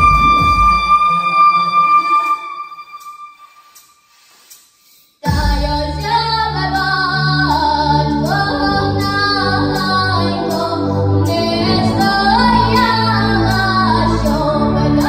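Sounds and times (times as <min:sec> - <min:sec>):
backing track with bass line: 0:00.0 - 0:03.1, 0:05.2 - 0:15.0
girl singing into a microphone: 0:05.2 - 0:15.0.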